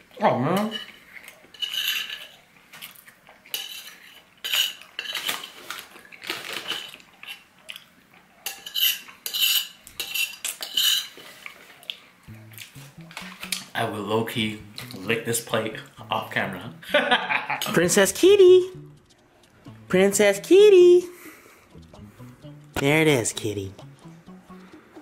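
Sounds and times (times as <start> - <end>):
metal spoon scraping ceramic plate: 0.6 - 2.4, 3.5 - 5.3, 8.5 - 11.2.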